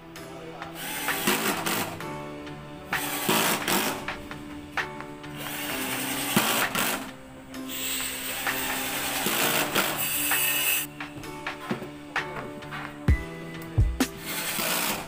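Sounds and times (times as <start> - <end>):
background music: 0.0 - 15.0
cordless drill driving screws: 7.7 - 10.9, 14.2 - 15.0.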